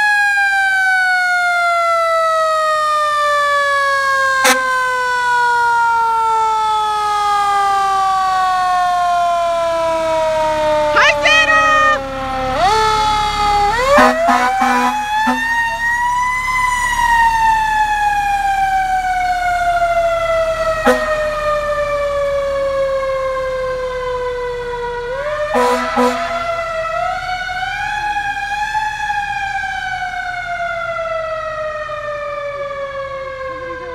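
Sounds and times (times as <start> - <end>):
fire truck siren wailing: 0.0 - 33.9
air horn blasts: 4.4 - 4.9, 13.8 - 15.8, 20.8 - 21.3, 25.5 - 26.5.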